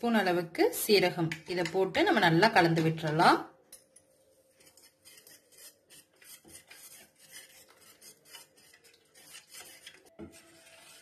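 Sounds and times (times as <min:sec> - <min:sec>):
whisk scraping a metal bowl: 0:04.5 - 0:11.0.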